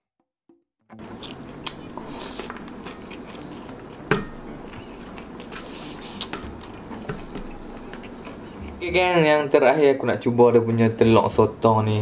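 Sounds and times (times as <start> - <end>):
chewing: 1.1 - 8.8.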